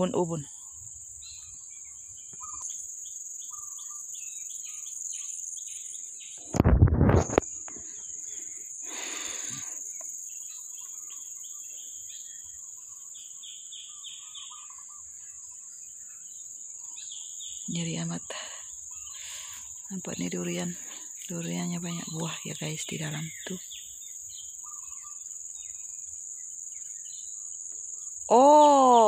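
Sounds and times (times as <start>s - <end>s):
bird chirps: 0.0s - 6.6s, 7.3s - 29.0s
insects droning: 0.0s - 29.0s
low rumble on microphone: 6.5s - 7.4s.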